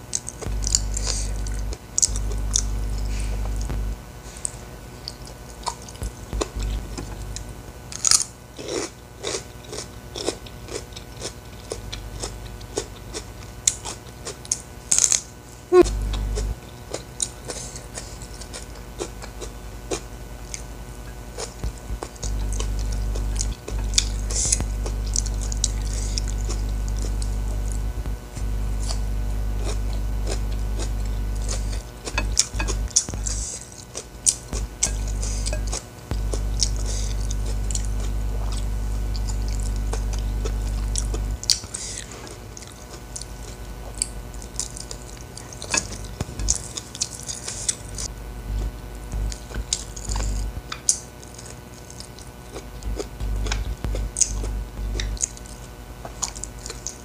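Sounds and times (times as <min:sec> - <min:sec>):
low steady hum: 0:00.0 - 0:57.0
chewing and lip smacks: 0:29.6 - 0:57.0.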